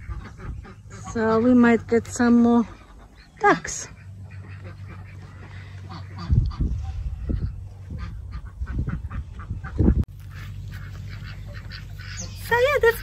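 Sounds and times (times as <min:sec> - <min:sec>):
wind noise on microphone: 0:00.0 - 0:01.2, 0:05.9 - 0:10.9
geese honking: 0:00.0 - 0:13.0.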